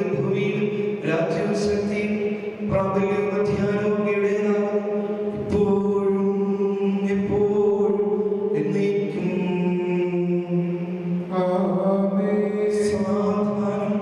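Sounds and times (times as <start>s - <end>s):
liturgical chant: 0.0s - 14.0s.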